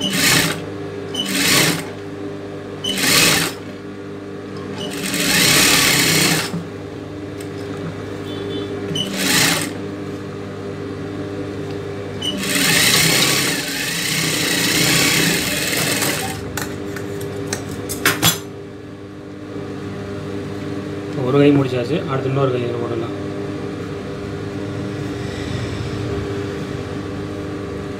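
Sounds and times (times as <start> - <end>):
sewing machine stitching: 0.0 - 0.6, 1.2 - 1.9, 2.9 - 3.6, 4.8 - 6.5, 9.0 - 9.8, 12.2 - 16.5
steady motor hum: 0.0 - 27.9.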